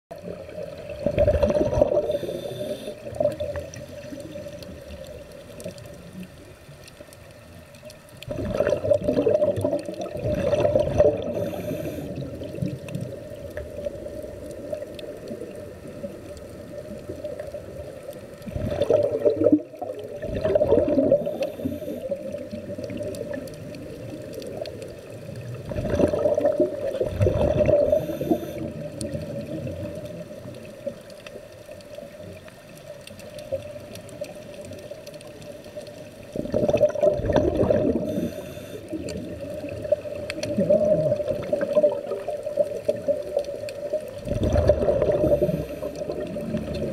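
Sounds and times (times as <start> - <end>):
gurgling exhaled bubbles: 0.1 - 6.6, 7.8 - 31.2, 33.3 - 46.9
steady hum: 1.8 - 8.1, 10.7 - 12.6, 20.6 - 22.3, 27.4 - 29.0, 37.8 - 39.0, 45.1 - 46.8
regulator hiss: 1.9 - 3.2, 11.2 - 12.4, 21.1 - 22.2, 27.8 - 28.9, 38.0 - 39.0, 45.2 - 46.2.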